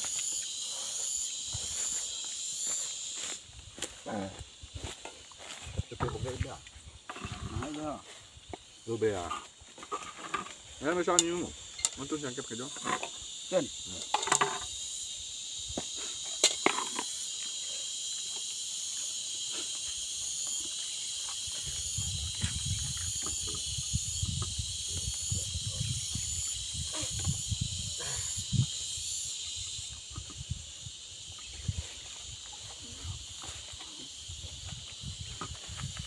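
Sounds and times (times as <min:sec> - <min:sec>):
insect chorus buzzing: 0:00.0 - 0:36.0
plates clicking and knocking: 0:14.0 - 0:14.7.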